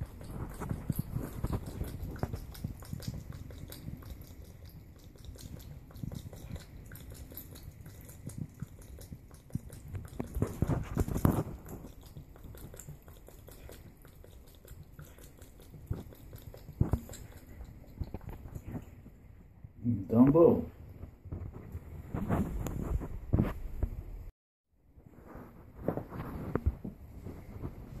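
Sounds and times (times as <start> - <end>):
cat lapping water: 0.0 - 19.3.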